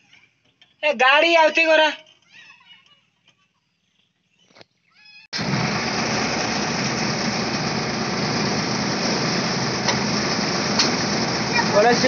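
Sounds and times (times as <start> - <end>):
diesel truck engine running: 5.4 - 12.0.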